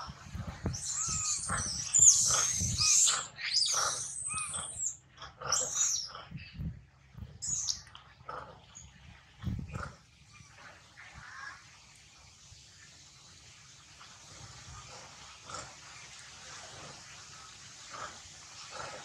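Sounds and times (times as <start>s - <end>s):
baby monkey crying: 0.6s - 6.1s.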